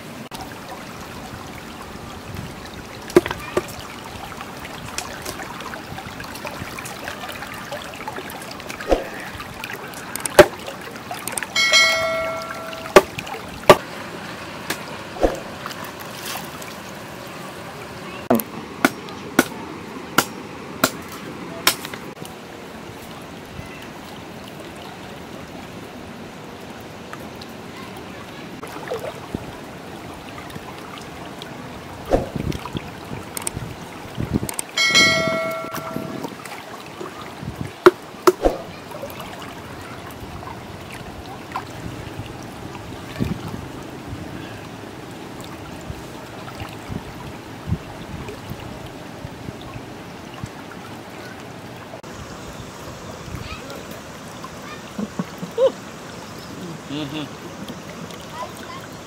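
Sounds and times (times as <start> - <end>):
flowing river water: 0.0 - 59.0
stream trickling: 0.0 - 59.0
notification bell chime: 11.6 - 13.0, 34.8 - 36.2.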